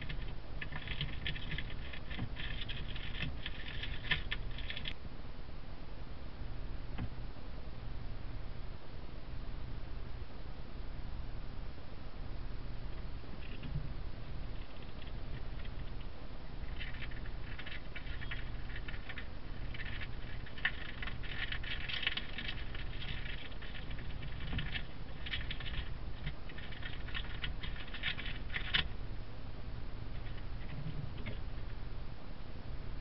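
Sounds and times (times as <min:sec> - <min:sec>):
vole gnawing paper: 0:00.0 - 0:05.0, 0:14.5 - 0:28.9
low hum: 0:00.0 - 0:33.0.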